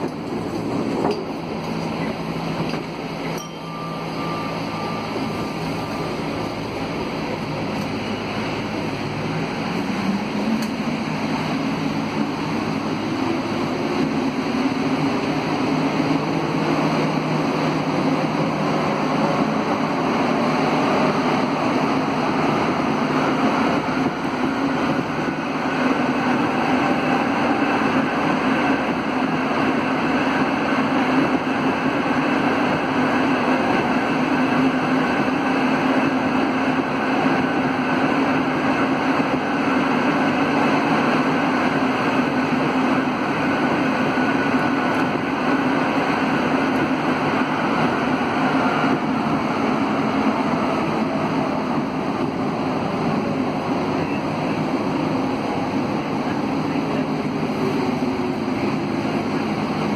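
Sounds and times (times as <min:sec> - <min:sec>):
metro train rolling roar: 0:00.0 - 0:59.9
faint high whine: 0:03.2 - 0:06.4.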